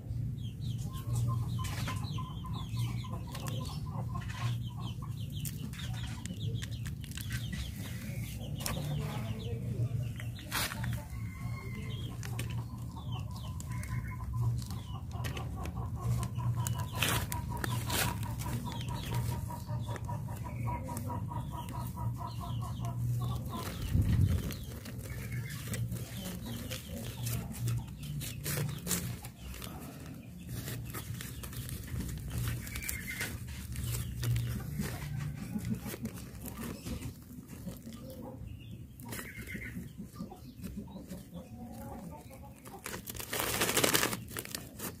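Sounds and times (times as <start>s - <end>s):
chickens clucking: 0.0s - 45.0s.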